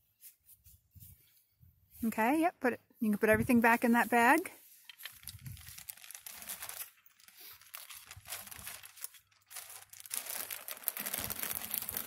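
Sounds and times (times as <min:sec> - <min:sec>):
plastic bag crinkling: 0:04.9 - 0:12.0.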